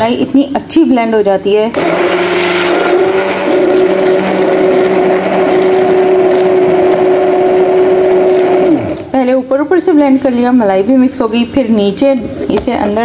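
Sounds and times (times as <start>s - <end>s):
hand blender running in milk: 1.7s - 9.1s.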